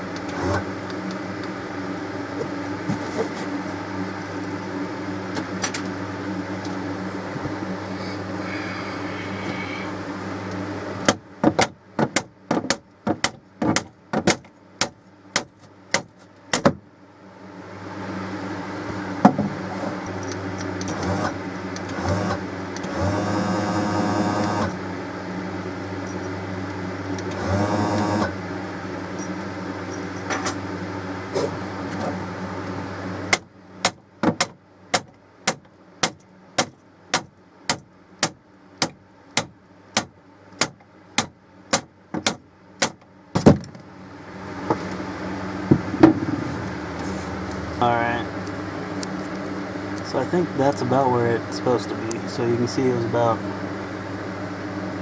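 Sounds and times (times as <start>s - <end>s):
electric lift motor running: 17.3s - 30.0s.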